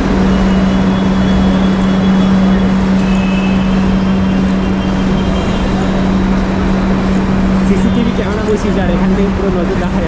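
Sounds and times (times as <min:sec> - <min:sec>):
station noise: 0:00.0 - 0:10.0
train equipment humming: 0:00.0 - 0:10.0.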